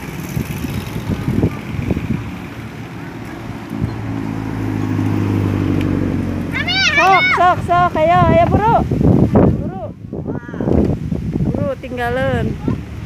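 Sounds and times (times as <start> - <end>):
vehicle engine running: 0.0 - 8.0
road traffic passing: 0.0 - 13.0.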